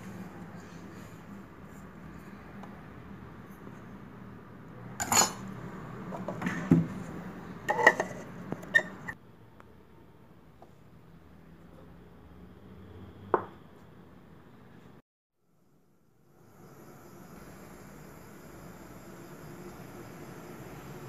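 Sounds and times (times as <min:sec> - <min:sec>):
steel jar and lid clinking: 0:05.0 - 0:05.5, 0:07.7 - 0:09.2.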